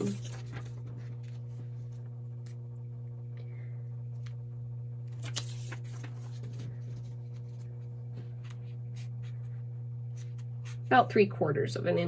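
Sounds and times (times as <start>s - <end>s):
paper rustling and tapping: 0.0s - 2.6s, 5.1s - 9.5s
steady low hum: 0.0s - 12.0s.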